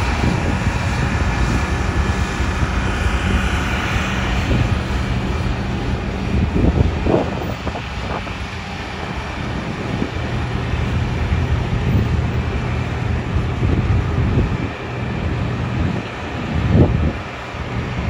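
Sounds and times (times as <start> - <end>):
locomotive diesel engine drone: 0.0 - 18.0
wind buffeting microphone: 0.0 - 18.0.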